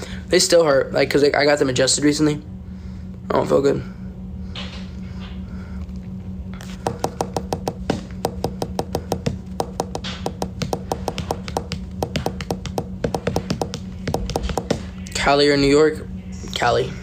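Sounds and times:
steady low hum: 0:00.0 - 0:17.0
rapid tapping clicks: 0:06.8 - 0:14.8.

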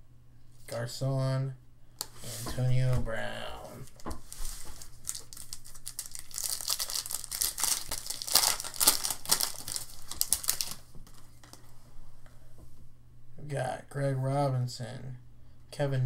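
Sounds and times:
foil wrapper crinkling and tearing: 0:04.3 - 0:11.6.

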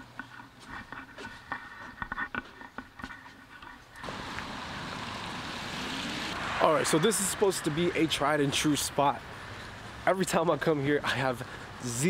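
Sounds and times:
parking lot background rush: 0:00.0 - 0:12.0.

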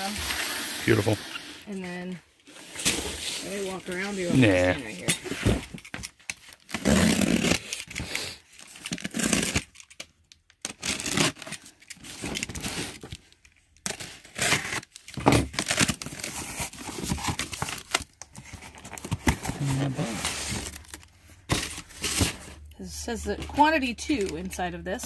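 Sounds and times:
tape tearing: 0:02.7 - 0:22.8
cardboard crinkling: 0:02.9 - 0:22.7
knife cutting packing tape: 0:06.7 - 0:09.9, 0:10.6 - 0:13.0, 0:13.9 - 0:18.0.

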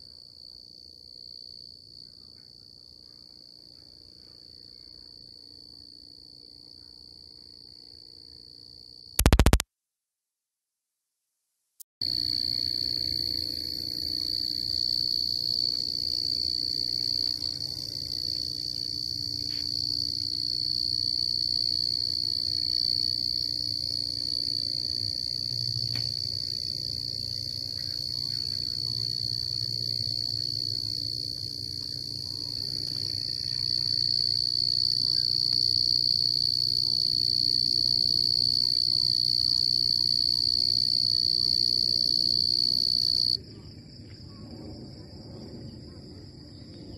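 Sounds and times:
night insects chirring: 0:00.0 - 0:09.2, 0:12.0 - 0:46.9
faint low hum: 0:12.1 - 0:39.0.

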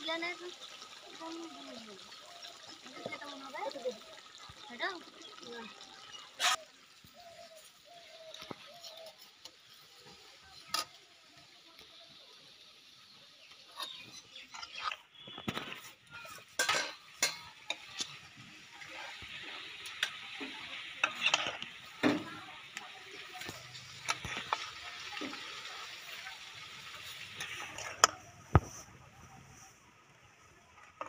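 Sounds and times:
metal spatula scraping a pan: 0:06.2 - 0:06.7, 0:13.6 - 0:18.3, 0:18.9 - 0:22.3.

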